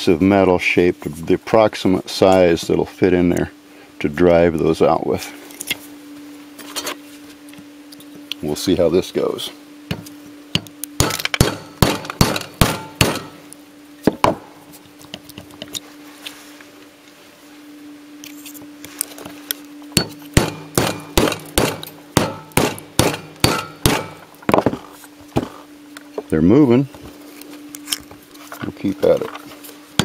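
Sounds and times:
hammer striking steel drift: 0:10.6 - 0:13.4, 0:20.0 - 0:24.3.

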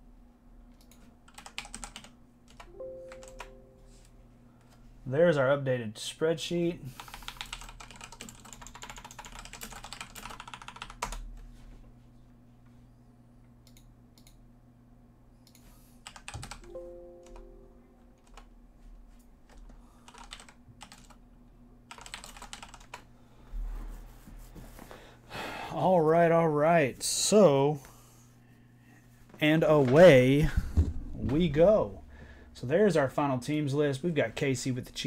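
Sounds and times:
typing on computer keyboard: 0:00.7 - 0:03.5, 0:07.0 - 0:11.2, 0:16.0 - 0:16.7, 0:19.5 - 0:21.2, 0:21.9 - 0:23.0.

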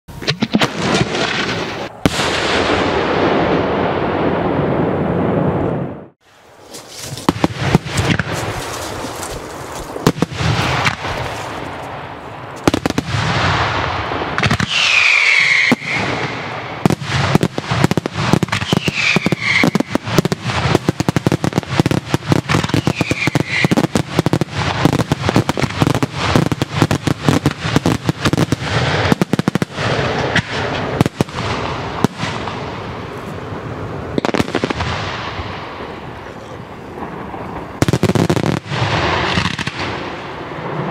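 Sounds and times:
fireworks falling whistles: 0:14.4 - 0:33.4.

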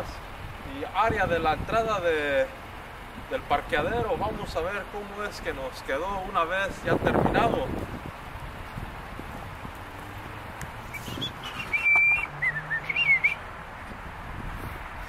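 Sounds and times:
whistled notes: 0:10.9 - 0:13.4.

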